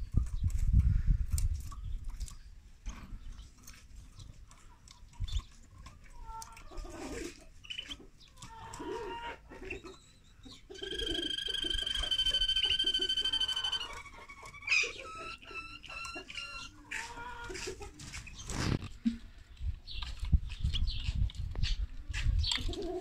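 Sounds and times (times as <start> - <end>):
finches chirping: 9.7 - 16.7.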